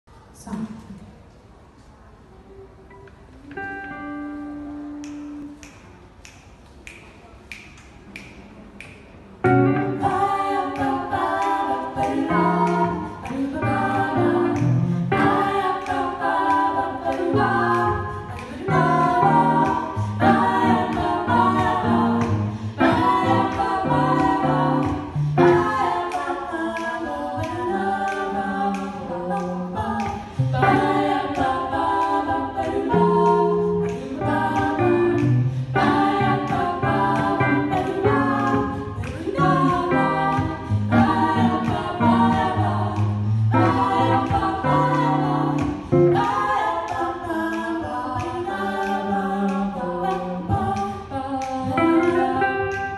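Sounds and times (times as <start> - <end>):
guitar accompaniment: 2.9 - 5.6, 9.4 - 16.0, 29.8 - 46.6
women singing in harmony: 9.5 - 52.9.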